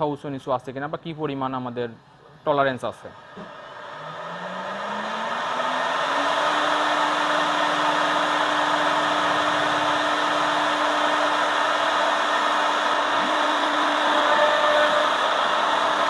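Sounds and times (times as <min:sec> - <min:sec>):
router spindle humming: 0:03.2 - 0:16.0.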